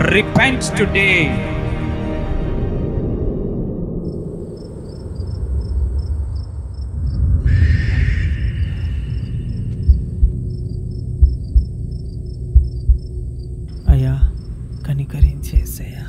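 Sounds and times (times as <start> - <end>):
low droning background: 0.0 - 16.0
crickets chirping: 3.6 - 16.0
low thumps: 9.2 - 16.0.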